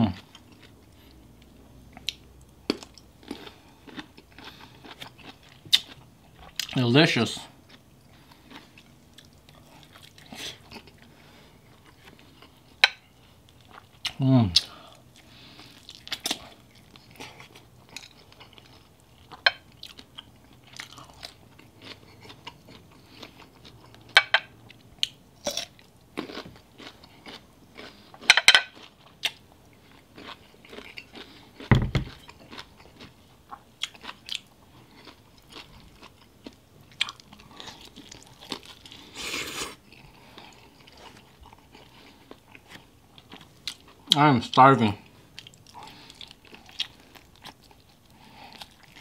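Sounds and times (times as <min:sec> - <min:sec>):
chewing and biting food: 0:01.9 - 0:06.8, 0:07.7 - 0:12.8, 0:15.1 - 0:39.2, 0:39.8 - 0:44.2, 0:45.0 - 0:49.0
dull thump: 0:31.7 - 0:32.2.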